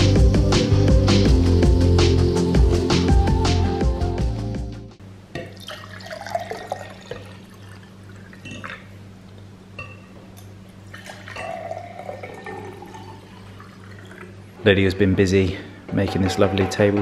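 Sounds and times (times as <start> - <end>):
water pouring into a glass: 5.5 - 8.9, 10.9 - 14.5.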